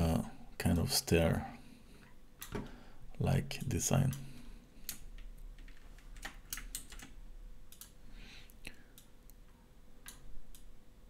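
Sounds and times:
computer mouse clicks: 4.8s - 8.0s.

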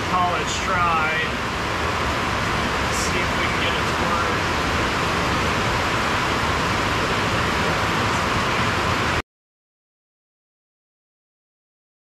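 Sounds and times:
steady rushing noise: 0.0s - 9.2s.

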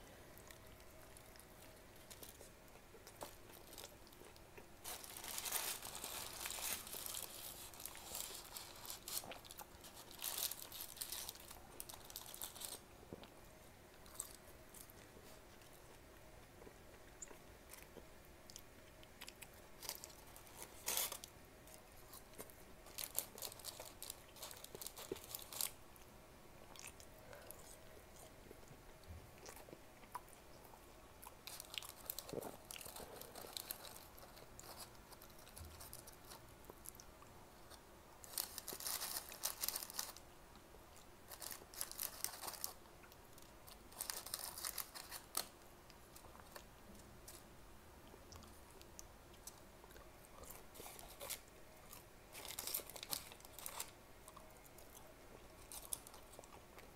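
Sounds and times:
chewing and crunching: 0.2s - 47.4s, 48.0s - 56.9s
paper wrapper crackling: 4.8s - 12.9s, 19.8s - 21.3s, 22.8s - 25.8s, 31.4s - 36.4s, 38.2s - 40.2s, 41.3s - 45.6s, 52.3s - 54.0s.

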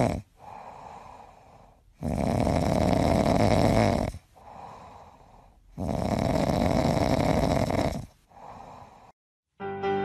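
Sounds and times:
dog snoring: 0.0s - 4.8s, 5.7s - 8.9s.

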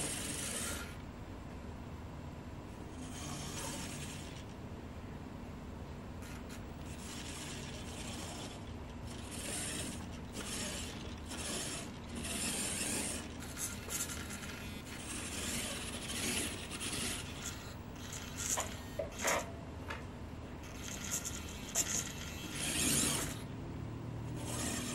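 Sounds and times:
toy car motor whirring: 0.0s - 1.0s, 3.0s - 4.6s, 6.2s - 19.5s, 20.6s - 23.5s, 24.2s - 24.9s.

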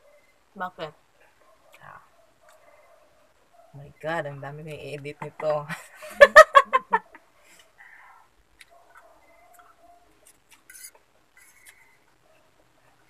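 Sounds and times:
person laughing: 5.4s - 7.1s.

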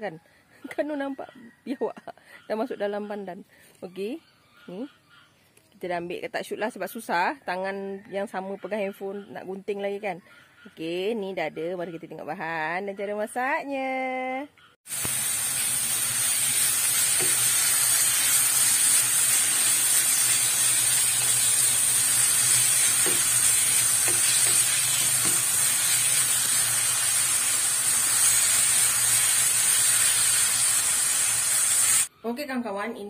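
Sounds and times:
filling sizzling in a frying pan: 14.9s - 32.1s.

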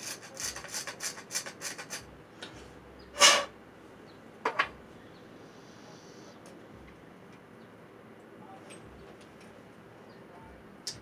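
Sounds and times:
deburring tool scraping tube: 0.0s - 2.1s, 3.2s - 3.5s.

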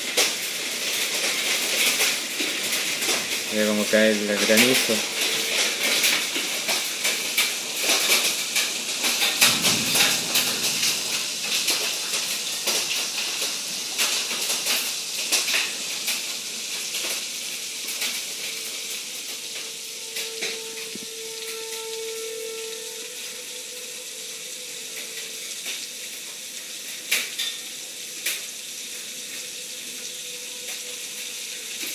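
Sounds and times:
hail and rain on a window: 0.0s - 31.9s
low rumble: 9.4s - 13.0s.

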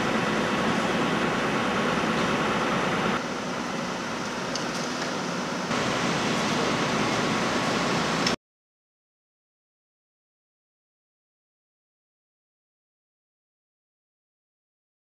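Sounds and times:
vehicle engines idling: 0.0s - 8.4s.

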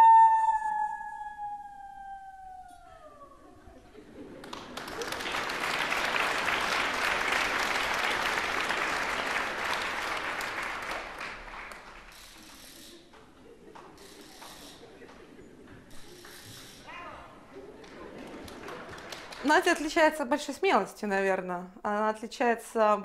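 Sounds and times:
audience applauding: 4.0s - 20.2s.

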